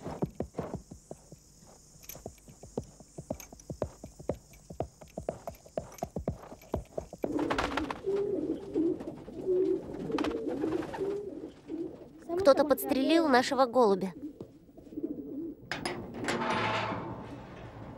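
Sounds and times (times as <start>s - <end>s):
pony hooves clip-clopping: 0.0s - 10.4s
pigeons cooing: 7.0s - 13.2s, 14.0s - 15.7s.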